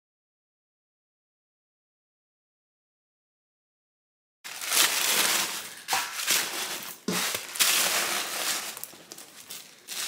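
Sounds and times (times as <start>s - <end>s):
leather bag crinkling and rustling: 4.5s - 10.0s.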